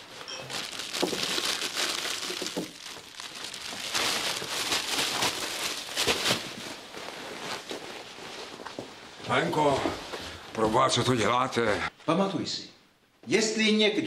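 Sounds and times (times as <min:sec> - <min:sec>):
cellophane crinkling: 0:00.0 - 0:09.0.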